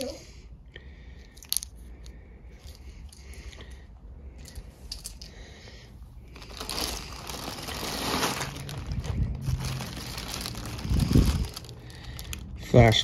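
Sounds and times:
plastic bag crinkling: 0:06.2 - 0:12.6.

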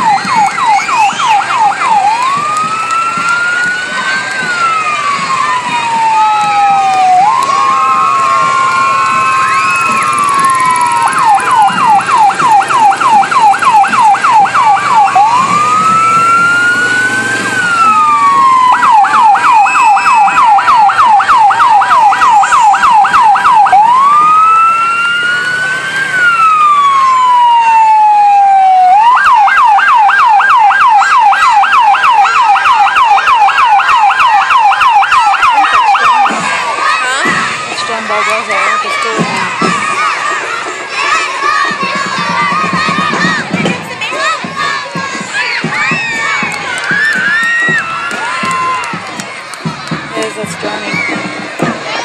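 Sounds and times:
electronic siren yelp and wail: 0:00.0 - 0:37.2.

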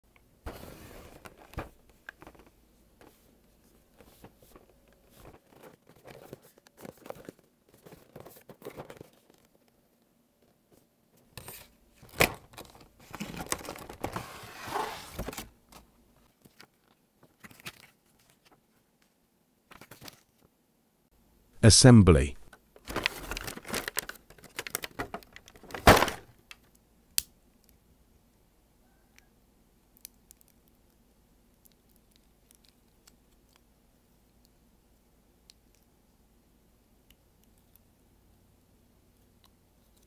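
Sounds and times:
plastic crinkling: 0:22.8 - 0:25.8.

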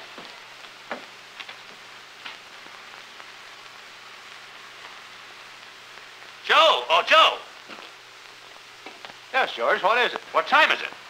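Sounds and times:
film soundtrack hiss: 0:00.0 - 0:11.0
faint clicks and pops: 0:00.2 - 0:06.4, 0:07.6 - 0:09.3.

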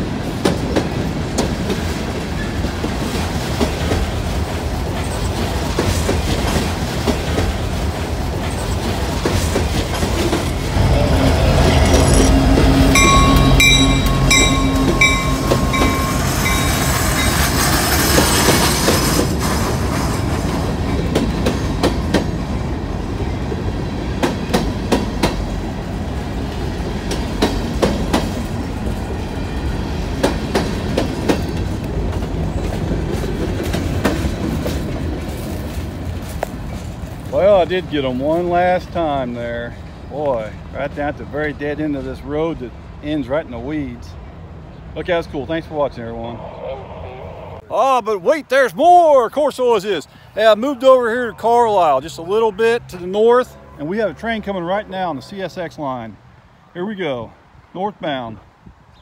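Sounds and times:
freight train wheels rumbling: 0:00.0 - 0:46.0
wheels clicking over rail joints: 0:00.1 - 0:10.9, 0:11.6 - 0:23.6, 0:26.4 - 0:38.9
high wheel squeal: 0:10.9 - 0:19.4.

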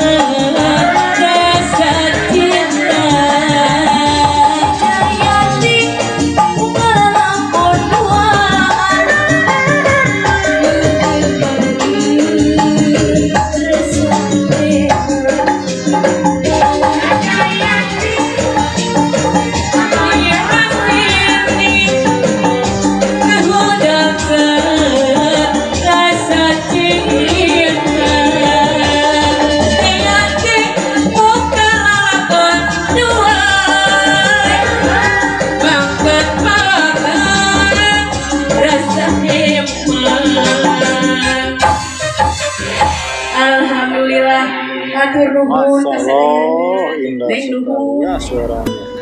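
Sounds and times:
woman singing into a microphone: 0:00.0 - 0:42.4, 0:43.3 - 0:48.2
percussion beat: 0:00.0 - 0:43.8, 0:48.0 - 0:49.0
live band music: 0:00.0 - 0:49.0.

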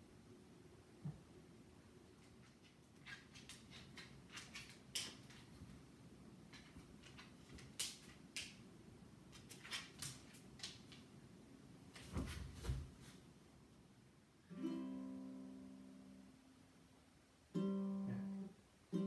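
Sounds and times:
dog claws clicking on hardwood: 0:02.4 - 0:05.6
footsteps on hardwood floor: 0:12.0 - 0:13.2.

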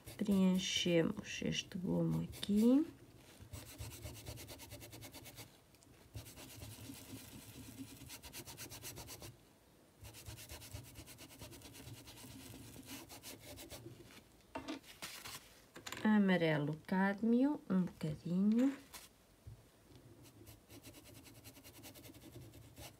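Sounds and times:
paintbrush scrubbing fabric: 0:00.0 - 0:00.8, 0:01.7 - 0:09.3, 0:10.0 - 0:14.2, 0:20.2 - 0:22.9.

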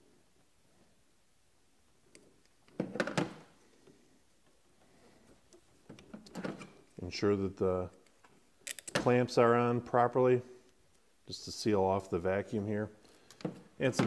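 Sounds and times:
pliers on hose clamps: 0:07.9 - 0:09.1.

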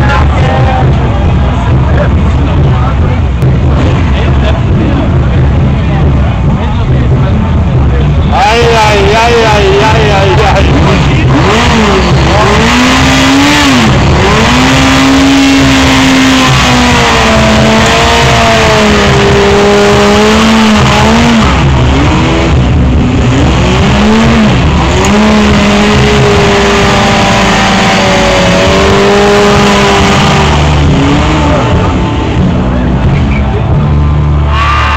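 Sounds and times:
motorcycle engine revving: 0:00.0 - 0:34.9.

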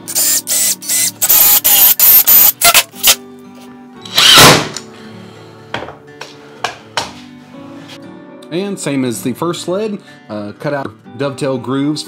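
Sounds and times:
acoustic guitar music: 0:02.0 - 0:04.1.

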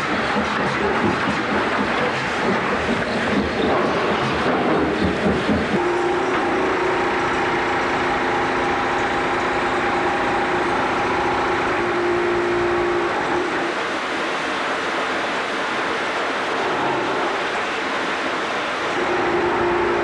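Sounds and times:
block-making machine din: 0:00.0 - 0:20.0.

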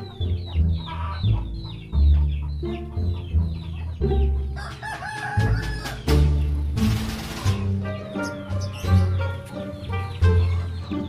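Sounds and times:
chicks cheeping: 0:00.0 - 0:11.0
rooster crowing: 0:04.6 - 0:06.1.

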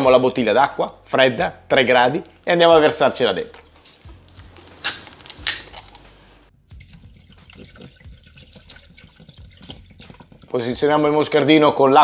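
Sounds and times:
plastic bottle opening: 0:03.4 - 0:06.2
water pouring into metal bowl: 0:06.7 - 0:10.8.

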